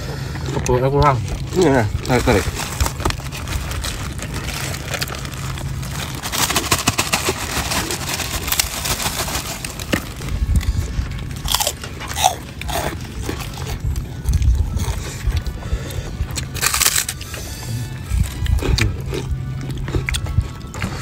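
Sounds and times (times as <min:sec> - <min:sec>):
crackers crunching: 0:00.0 - 0:21.0
chewing: 0:09.9 - 0:21.0.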